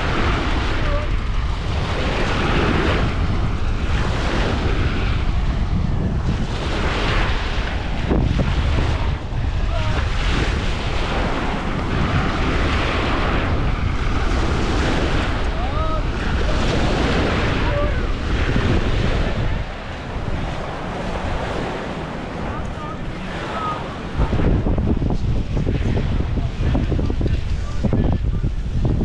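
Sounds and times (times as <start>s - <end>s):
surf washing onto beach: 0.0s - 29.0s
wind rumbling on microphone: 0.0s - 29.0s.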